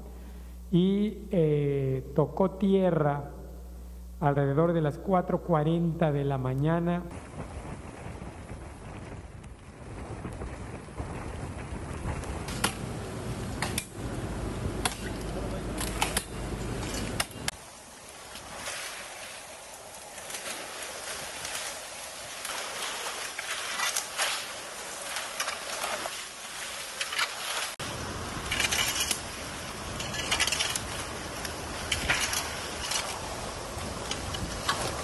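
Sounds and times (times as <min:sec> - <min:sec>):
wind rumble on microphone: 0:07.1 - 0:17.5, 0:27.8 - 0:35.0
rustling of leaves: 0:07.1 - 0:35.0
branches being chopped: 0:12.4 - 0:12.9, 0:13.6 - 0:14.0, 0:14.8 - 0:17.6, 0:19.9 - 0:26.2, 0:28.4 - 0:33.3.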